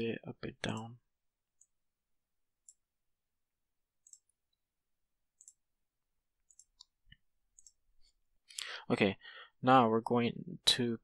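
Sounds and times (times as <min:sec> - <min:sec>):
computer mouse clicks: 0:02.6 - 0:02.8, 0:04.0 - 0:04.4, 0:05.4 - 0:05.6, 0:06.4 - 0:07.8.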